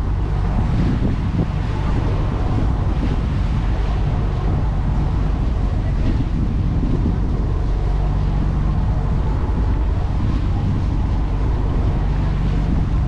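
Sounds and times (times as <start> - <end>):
boat engine drone: 0.0 - 13.0.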